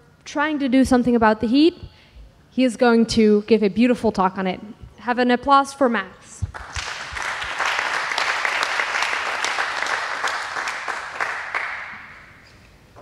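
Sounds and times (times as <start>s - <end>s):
audience applauding: 6.5s - 12.4s.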